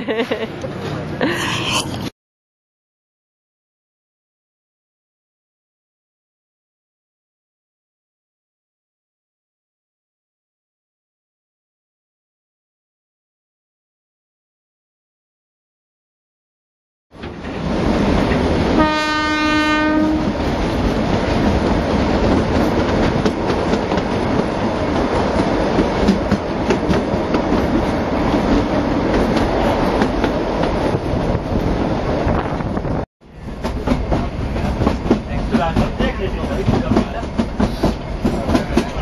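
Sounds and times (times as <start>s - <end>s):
train carriage rumbling: 0.0s - 2.1s, 17.1s - 39.0s
train horn blast: 18.7s - 20.4s
wheels clicking over rail joints: 33.4s - 39.0s.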